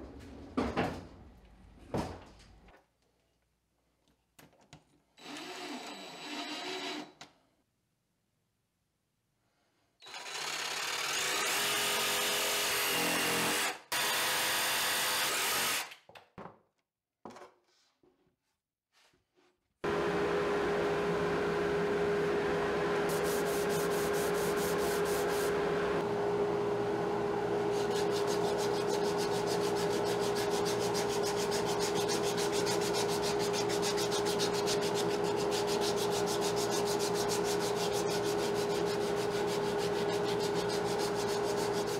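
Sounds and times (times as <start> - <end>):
dust extractor humming: 19.8 - 41.9
sandpaper rubbing on wood: 23.1 - 25.5, 27.7 - 41.9.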